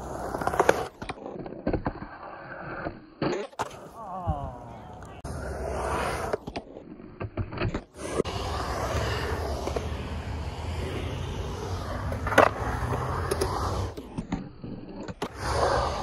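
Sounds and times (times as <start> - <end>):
skateboard wheels rumbling on concrete: 0.0 - 16.0
skateboard clacks: 6.1 - 14.4.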